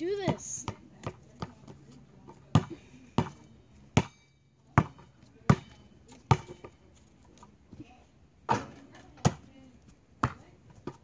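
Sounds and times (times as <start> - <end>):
basketball bouncing: 0.0 - 1.8, 2.4 - 6.8, 8.5 - 9.5, 10.2 - 11.0.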